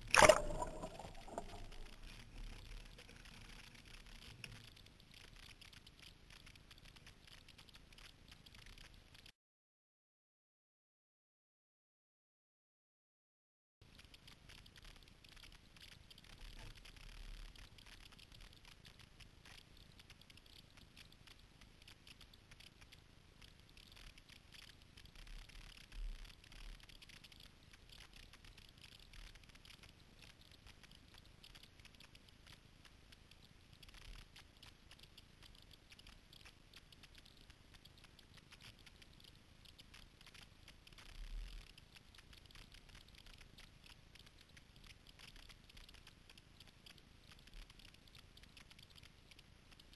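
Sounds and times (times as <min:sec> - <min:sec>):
water dripping and splashing: 0:00.0 - 0:03.1.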